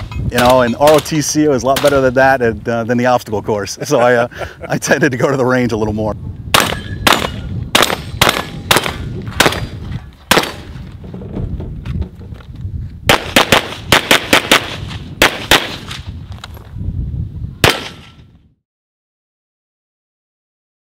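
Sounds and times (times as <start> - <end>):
long gun shots: 6.5 - 10.8, 13.1 - 16.1, 17.6 - 18.2
handgun shots: 17.6 - 18.2.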